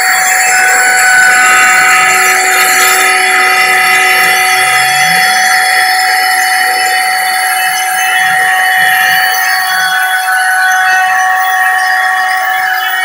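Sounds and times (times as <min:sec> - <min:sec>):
metal cutting noise: 0:00.0 - 0:09.8
router spindle whine: 0:00.0 - 0:13.0.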